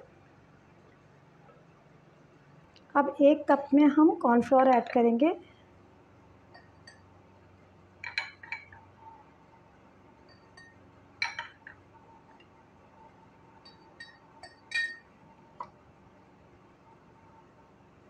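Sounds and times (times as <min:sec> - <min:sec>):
spoon clinking against a cup: 0:06.5 - 0:07.1, 0:10.2 - 0:11.8, 0:13.6 - 0:15.1.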